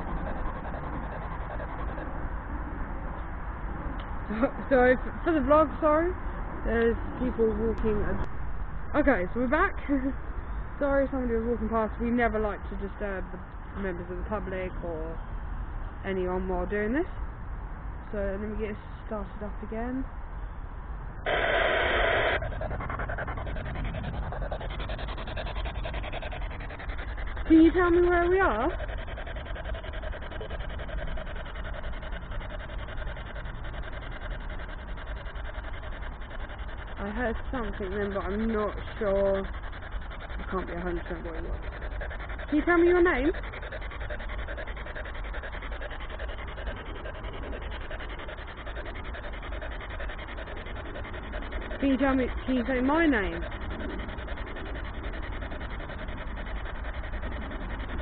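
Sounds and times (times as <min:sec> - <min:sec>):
radio scanner static: 0:21.3 - 0:22.5.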